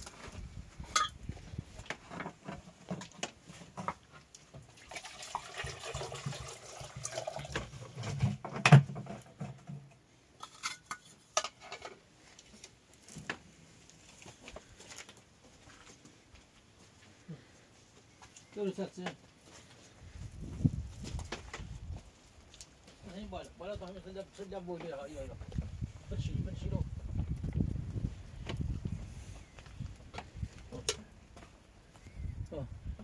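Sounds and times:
liquid sloshing inside: 4.5s - 8.4s.

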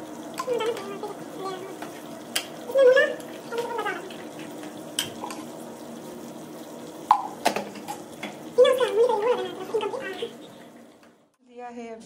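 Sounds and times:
voices: 0.4s - 4.4s, 8.5s - 10.6s.

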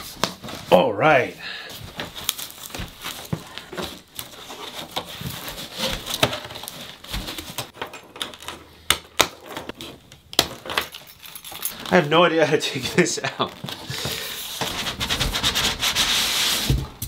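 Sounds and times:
plastic wrapping crinkling: 1.8s - 8.5s, 9.3s - 15.4s
foam packing squeaks and clicks: 2.2s - 8.4s.

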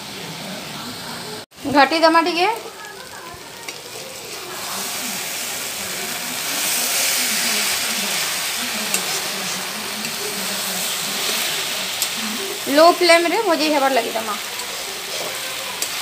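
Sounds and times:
mushrooms sizzling in pan: 0.1s - 16.0s
metal spatula scraping pan: 14.1s - 16.0s.

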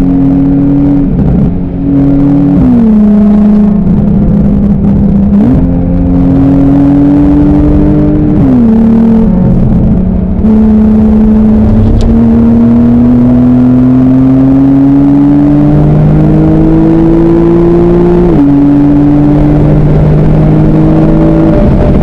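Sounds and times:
car engine accelerating: 0.0s - 22.0s.

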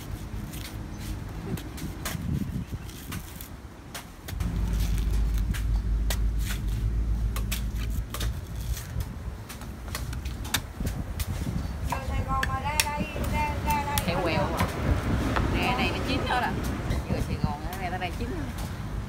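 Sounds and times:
machete chopping coconut husk: 1.5s - 12.9s
low steady hum: 4.4s - 9.3s.

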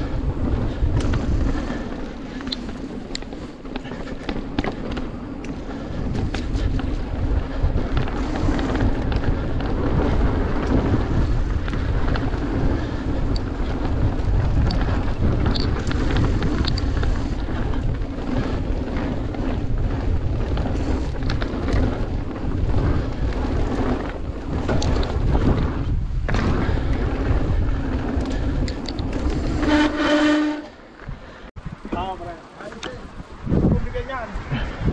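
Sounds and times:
bike rattling and knocking: 0.0s - 30.7s, 31.7s - 34.8s
tyres rumbling on dirt: 0.0s - 31.2s
wind on microphone: 0.0s - 32.3s, 33.0s - 34.9s
brake squeal: 29.3s - 30.8s.

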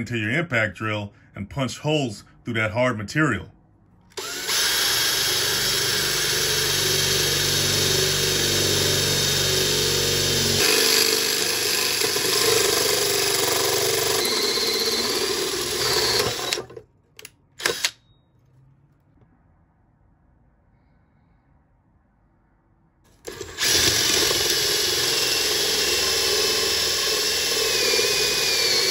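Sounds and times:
drill with hole saw cutting metal: 4.2s - 16.8s, 17.6s - 18.0s, 23.1s - 28.9s.

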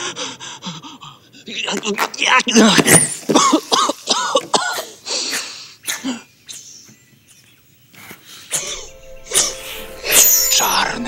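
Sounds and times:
shaky gasping breaths: 0.0s - 1.5s, 4.8s - 6.2s
person coughing: 3.3s - 5.0s.

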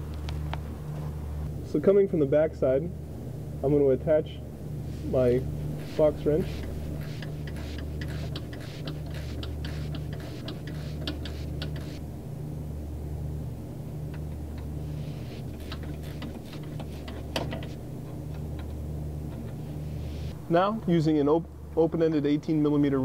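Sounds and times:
steady low hum: 0.0s - 23.0s
ratcheting wrench clicking: 7.0s - 12.0s.

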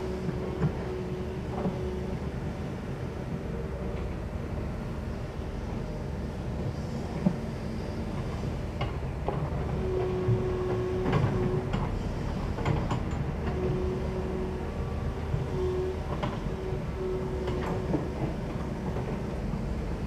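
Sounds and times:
excavator diesel engine droning: 0.0s - 20.0s.

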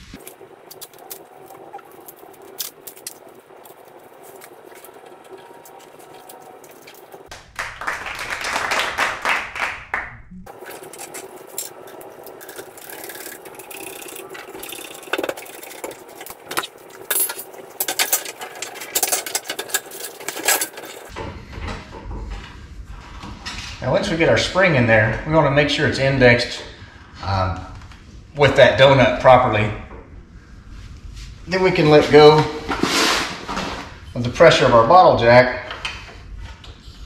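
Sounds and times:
tape rustling and crinkling: 0.0s - 7.3s.

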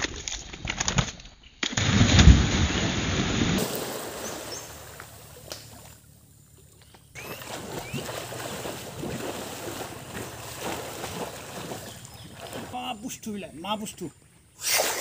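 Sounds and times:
person splashing into pond: 1.8s - 6.0s, 7.2s - 13.0s, 14.6s - 15.0s
water churning: 1.8s - 13.4s.

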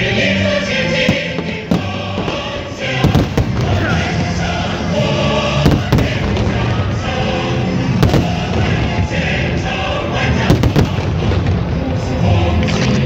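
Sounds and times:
choral music: 0.0s - 13.0s
fireworks bangs: 0.9s - 7.0s, 7.8s - 12.2s
fireworks crackle: 1.1s - 4.4s, 8.0s - 9.1s, 10.3s - 13.0s.

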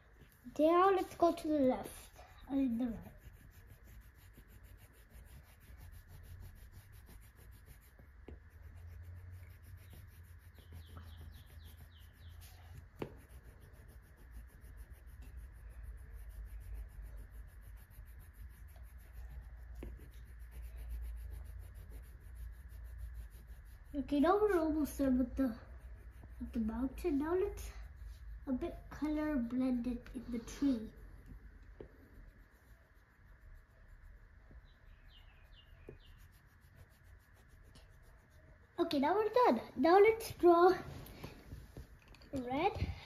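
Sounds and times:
pencil rubbing on paper: 0.0s - 43.0s.

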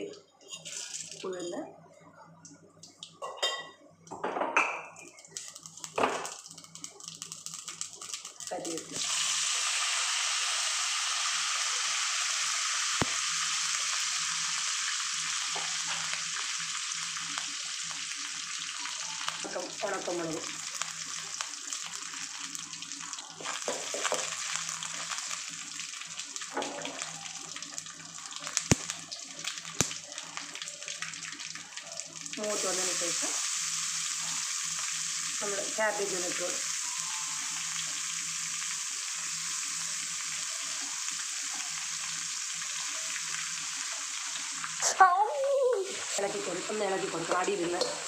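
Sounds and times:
sharp pops of frying: 2.8s - 9.7s, 11.0s - 48.0s
leaves sizzling in hot oil: 5.0s - 48.0s.

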